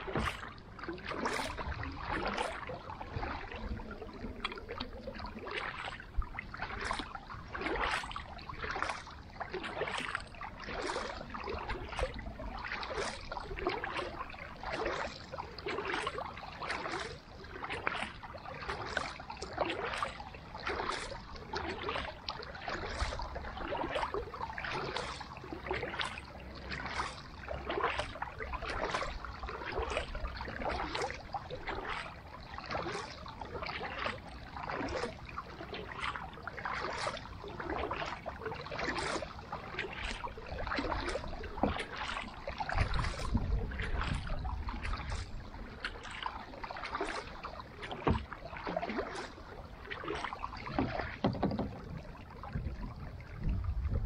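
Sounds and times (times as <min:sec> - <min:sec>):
paddle splashing in water: 0:00.0 - 0:54.0
low rumble: 0:52.6 - 0:54.0.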